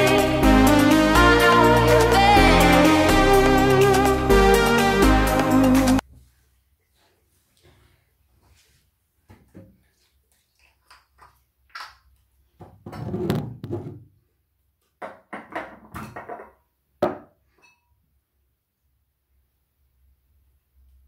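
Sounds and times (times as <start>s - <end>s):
toiletries knocking and rustling: 12.6s - 14.1s, 15.0s - 17.4s.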